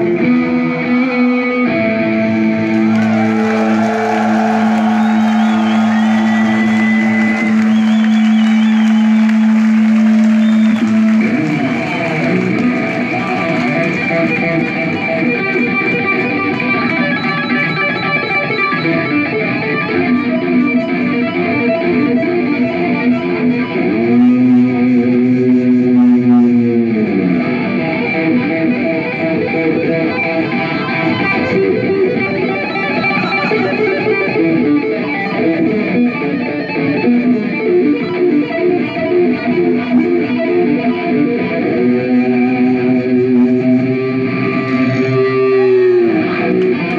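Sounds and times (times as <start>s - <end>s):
electric guitar solo: 0.0s - 46.9s.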